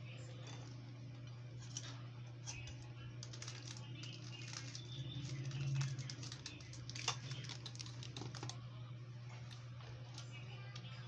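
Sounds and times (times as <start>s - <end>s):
steady low hum: 0.0s - 11.0s
spoon and cereal crunching: 1.6s - 8.6s.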